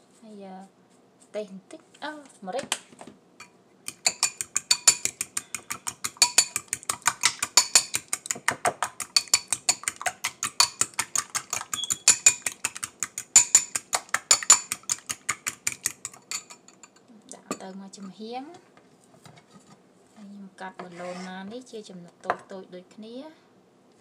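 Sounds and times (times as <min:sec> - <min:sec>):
fork beating eggs in glass bowl: 0:03.4 - 0:17.6.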